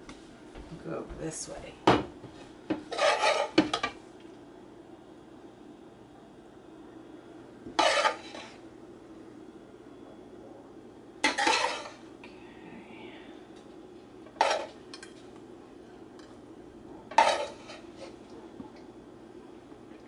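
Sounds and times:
spoon scraping metal skillet: 0:02.9 - 0:03.9, 0:07.8 - 0:08.6, 0:11.2 - 0:12.0, 0:17.2 - 0:18.2.

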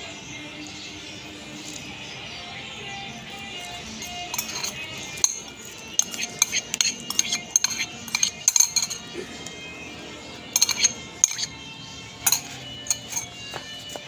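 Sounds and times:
background music: 0:00.0 - 0:14.0
metal tin clinking: 0:04.0 - 0:09.1, 0:10.5 - 0:11.6, 0:12.2 - 0:14.0.

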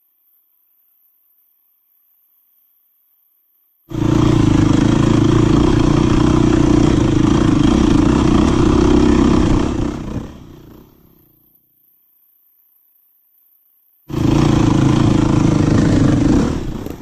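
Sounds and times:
motorcycle engine running: 0:03.9 - 0:11.1, 0:14.1 - 0:17.0.

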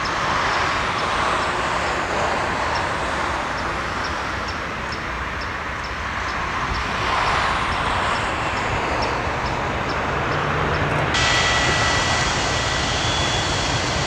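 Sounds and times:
jet engines roaring: 0:00.0 - 0:14.0
high whine: 0:10.8 - 0:14.0.

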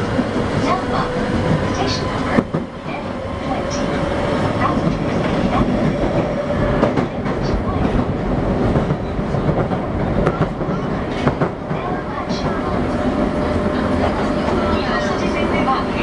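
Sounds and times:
subway train wheels rumbling: 0:00.0 - 0:16.0
rail-joint clicks: 0:08.8 - 0:12.8.

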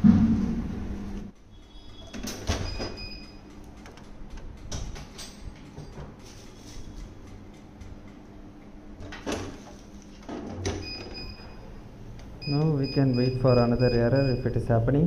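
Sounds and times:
door hinge squeak: 0:01.6 - 0:03.2.

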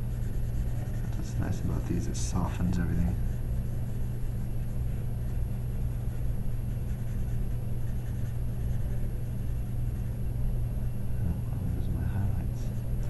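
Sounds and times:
blending stump rubbing on paper: 0:00.0 - 0:10.2
steady low hum: 0:00.0 - 0:13.0.

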